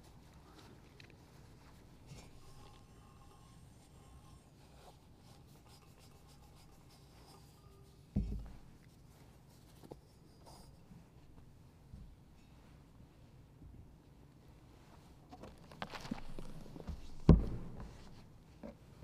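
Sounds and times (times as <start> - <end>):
cloth rubbing metal cup: 2.0 - 10.9
dull thump: 8.2 - 8.6, 16.9 - 18.2.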